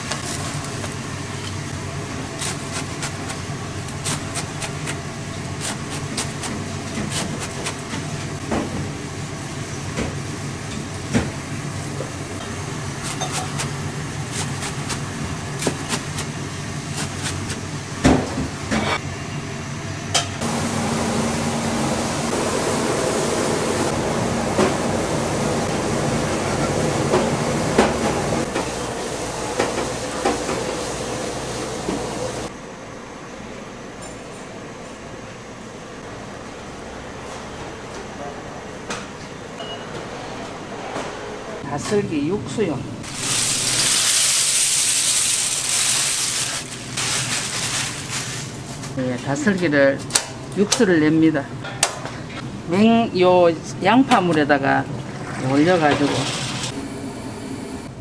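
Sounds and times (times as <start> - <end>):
utensils and dishes clinking: 13.0 - 13.7.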